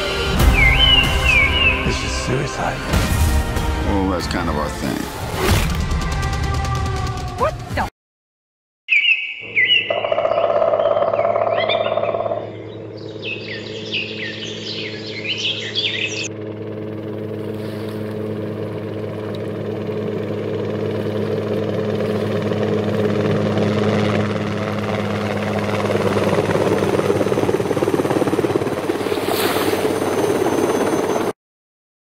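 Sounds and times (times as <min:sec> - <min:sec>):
helicopter engine drone: 0:00.0 - 0:05.2, 0:09.4 - 0:31.4
helicopter rotor chop: 0:11.1 - 0:31.3.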